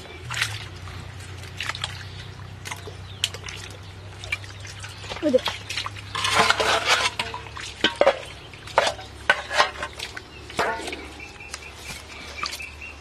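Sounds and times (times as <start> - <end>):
bowl splashing muddy water: 0.0 - 13.0
bowl scraping against mud: 4.6 - 12.8.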